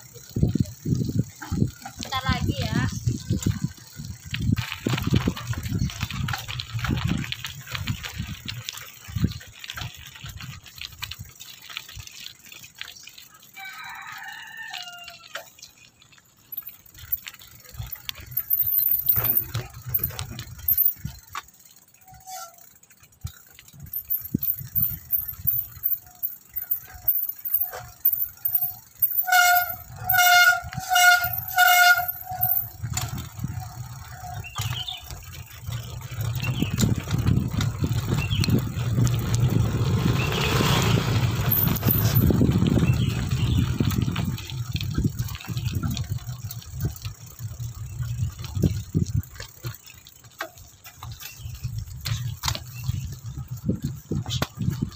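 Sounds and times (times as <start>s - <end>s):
wind buffeting microphone: 0.0s - 11.4s, 17.1s - 21.4s, 23.2s - 49.8s, 50.5s - 54.9s
bicycle rumbling over dirt track: 0.0s - 54.9s
horn tooting: 29.0s - 32.7s.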